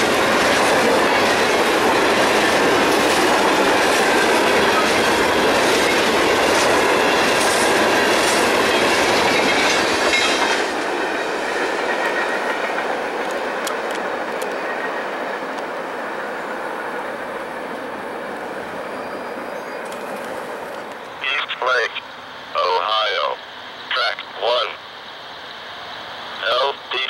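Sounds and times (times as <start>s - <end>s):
train wheels clicking over rail joints: 0.0s - 14.8s
rush of rail noise: 0.0s - 27.0s.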